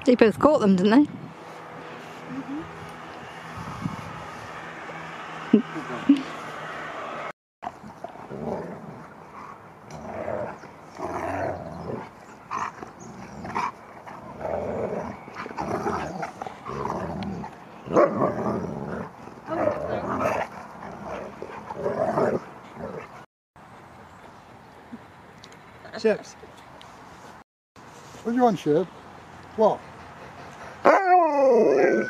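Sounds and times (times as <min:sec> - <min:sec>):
dogs growling and grumbling: 0:07.6 - 0:23.3, 0:30.3 - 0:32.0.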